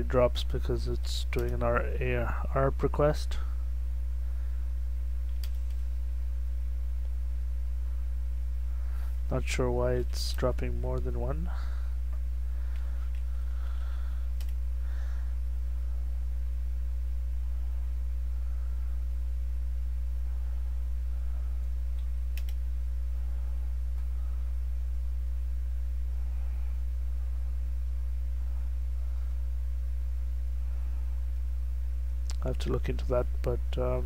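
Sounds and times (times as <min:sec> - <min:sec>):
low electrical hum: 0:00.0 - 0:34.0
keyboard clicks: 0:01.4 - 0:01.6, 0:05.3 - 0:05.8, 0:22.0 - 0:22.6.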